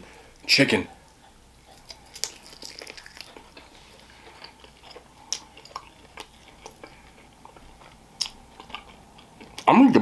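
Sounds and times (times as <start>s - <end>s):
person chewing crispy food: 1.1s - 9.9s
wet mouth clicks: 1.7s - 3.6s.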